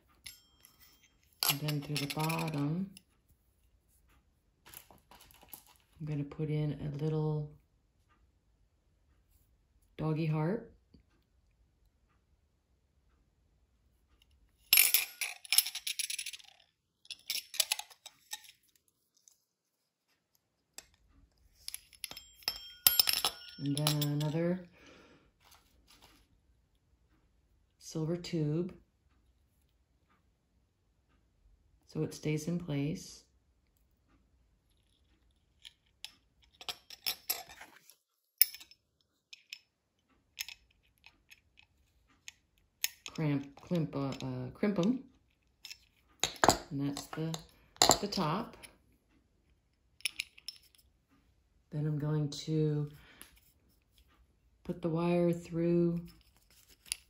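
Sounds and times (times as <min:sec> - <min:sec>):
small metal parts clicking: 0:00.0 - 0:02.6, 0:04.7 - 0:05.8, 0:14.7 - 0:19.4, 0:20.8 - 0:24.4, 0:34.7 - 0:44.2, 0:45.3 - 0:48.2, 0:50.0 - 0:50.9, 0:56.0 - 0:57.0
small metal pieces clinking: 0:00.2 - 0:02.6, 0:14.7 - 0:18.6, 0:21.6 - 0:24.3, 0:36.5 - 0:37.8, 0:38.4 - 0:39.6, 0:45.6 - 0:48.1.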